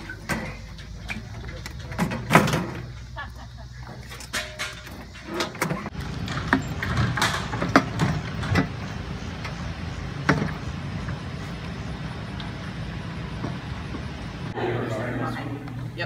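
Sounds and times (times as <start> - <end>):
hand truck wheels rumbling on asphalt: 0.0 - 14.6
load knocking and rattling: 4.1 - 9.6.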